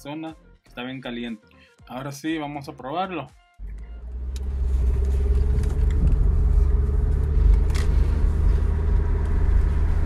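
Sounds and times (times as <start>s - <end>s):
car engine and road rumble: 3.6s - 10.0s.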